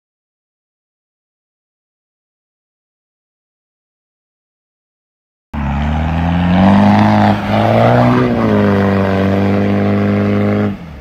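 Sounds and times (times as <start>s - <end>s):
engine revving hard: 5.6s - 11.0s.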